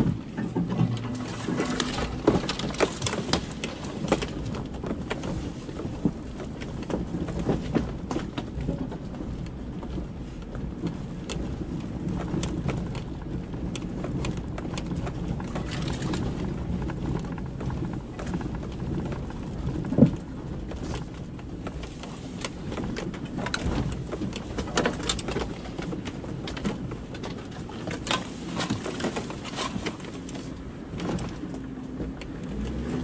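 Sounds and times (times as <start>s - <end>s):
twigs knocking against vehicle: 0.0s - 10.0s
vehicle engine and road rumble: 0.0s - 33.0s.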